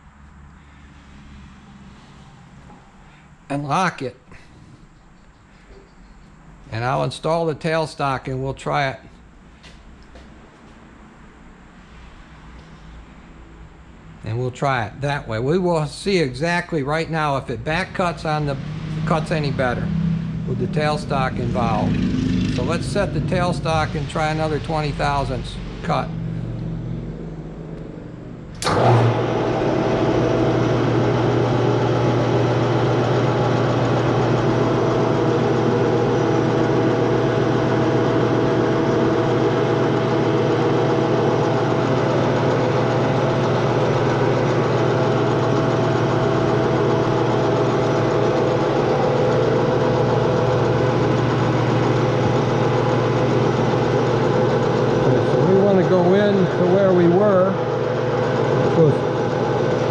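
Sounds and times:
metal lathe running: 17.2 - 26.6, 28.5 - 59.9.

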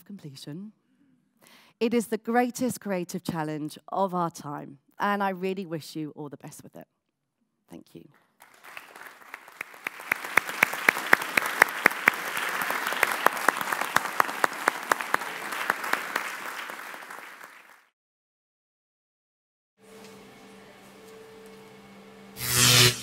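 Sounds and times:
audience applauding: 8.4 - 17.9
close sharp clapping: 8.4 - 17.9.

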